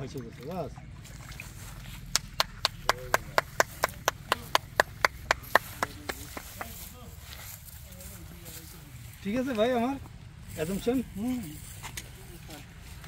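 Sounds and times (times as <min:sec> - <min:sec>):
rapid sharp slaps: 0:02.1 - 0:06.9.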